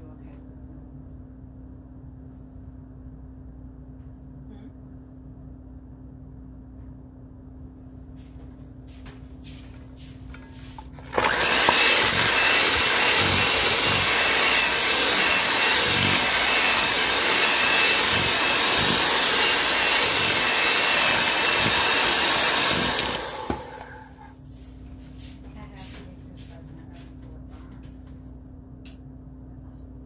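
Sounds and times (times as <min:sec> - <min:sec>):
electric mixer running: 0:10.9 - 0:24.3.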